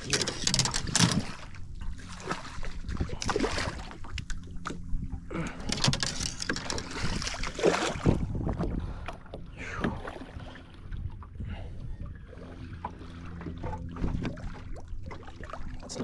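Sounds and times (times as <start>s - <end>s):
water splashing against boat: 0.0s - 16.0s
wind on microphone: 2.6s - 3.5s, 6.8s - 12.8s.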